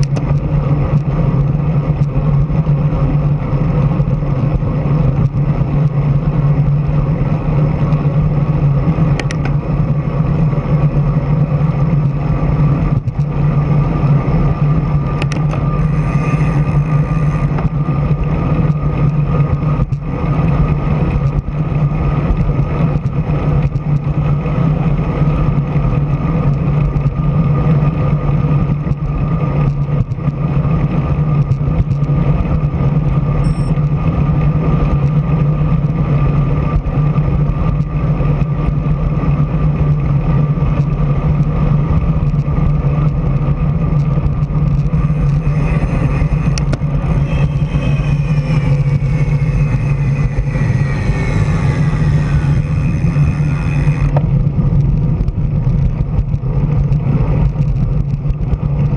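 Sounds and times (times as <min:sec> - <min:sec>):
faint steady whine: 0:00.0 - 0:25.0, 0:32.9 - 0:35.2, 0:40.8 - 0:58.9
rushing wind and road noise: 0:00.0 - 0:58.9.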